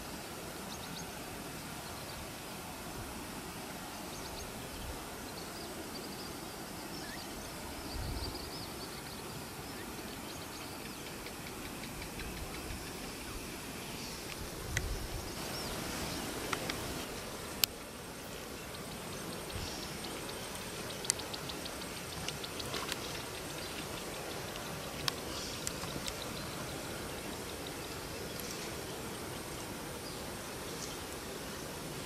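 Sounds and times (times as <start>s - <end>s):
steady hiss: 0.0s - 32.0s.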